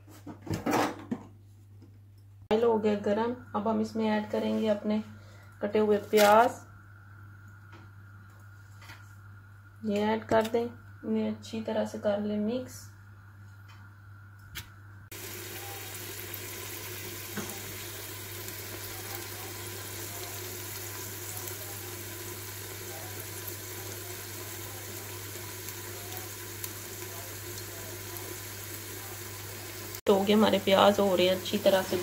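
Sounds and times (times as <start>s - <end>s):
onions frying in hot oil: 15.1s - 32.0s.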